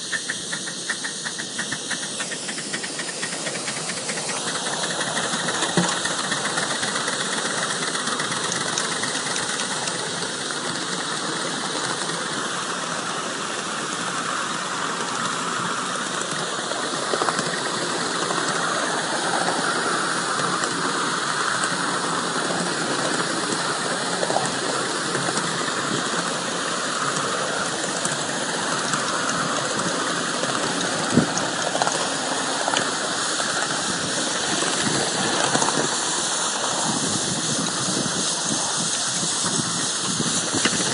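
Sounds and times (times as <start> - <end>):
steam hissing: 0.0 - 40.9.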